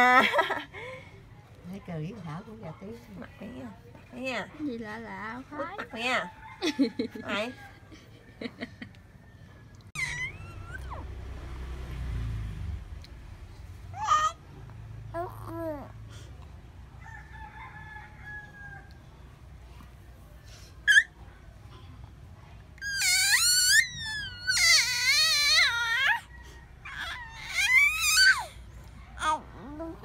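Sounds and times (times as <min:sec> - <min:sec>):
baby squealing: 0:10.0 - 0:11.0, 0:20.9 - 0:21.1, 0:22.8 - 0:28.6.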